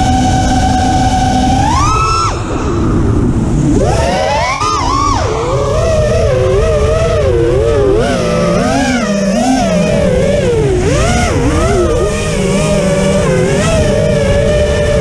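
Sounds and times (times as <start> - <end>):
drone motors whining: 0.0 - 15.0
steady low rumble: 0.0 - 15.0.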